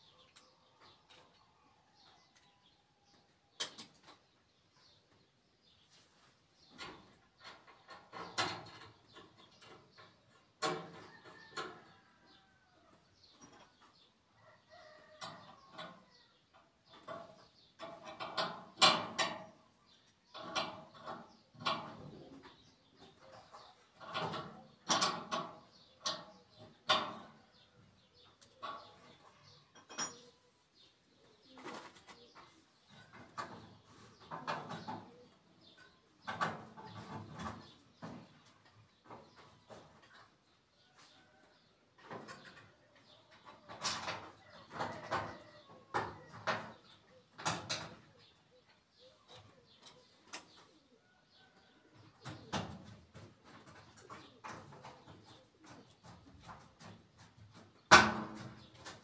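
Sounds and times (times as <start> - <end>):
metal knocks clicks and scrapes: 16.9 - 19.6, 20.3 - 27.4, 28.4 - 30.4, 52.2 - 59.0.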